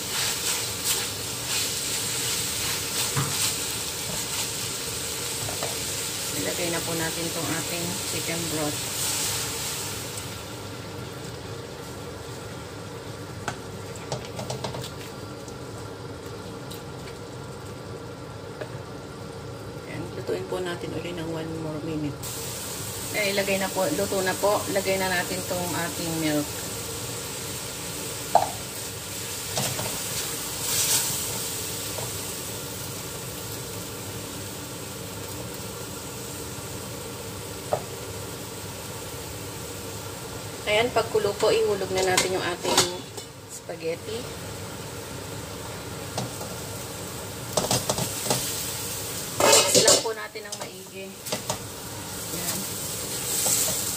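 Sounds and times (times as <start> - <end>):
spatula scraping wok: 0.0 - 4.7, 41.8 - 43.3, 49.3 - 51.6, 52.4 - 53.9
pan hissing: 0.0 - 10.5, 22.2 - 32.8
sauce sizzling in a wok: 0.0 - 53.9.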